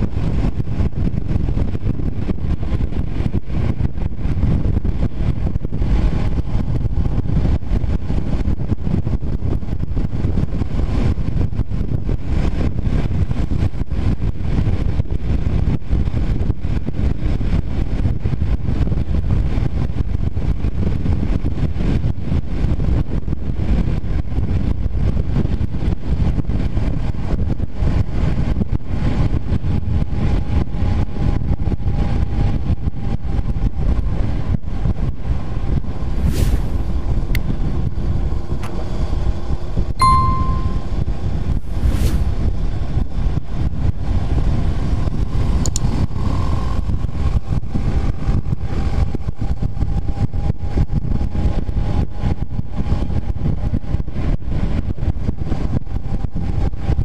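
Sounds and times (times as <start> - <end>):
wind buffeting microphone: 0.0 - 40.2, 40.8 - 57.0.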